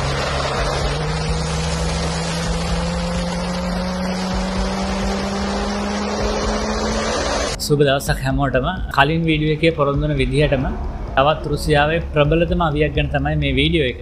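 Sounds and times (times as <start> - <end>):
jet engines whining: 0.0 - 7.6.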